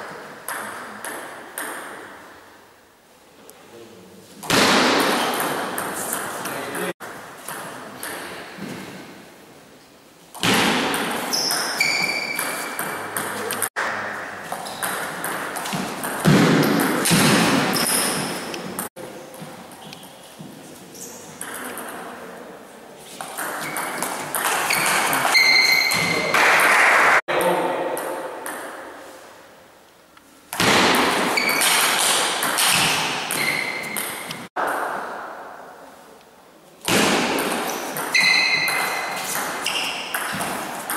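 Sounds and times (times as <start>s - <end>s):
brief squeak: 24.7s - 26.2s, 38.2s - 38.7s.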